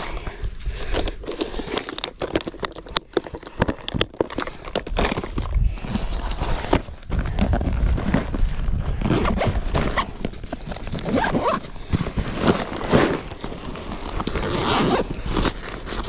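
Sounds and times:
rustling and handling noises: 0.0s - 16.0s
bag zipper: 9.0s - 10.2s, 10.9s - 16.0s.

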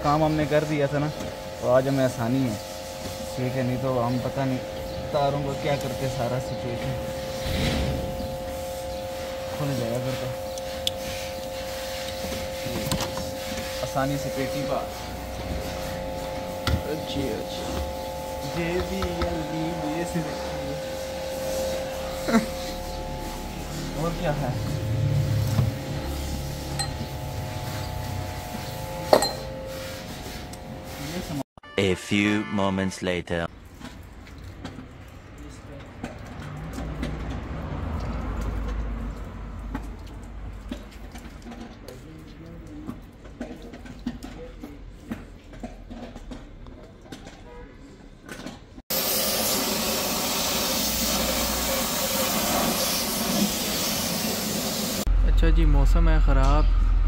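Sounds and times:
pressure washer spraying water: 0.0s - 31.4s, 48.9s - 55.1s
steady low hum: 0.0s - 31.4s
metallic clinks and knocks: 29.1s - 29.6s.

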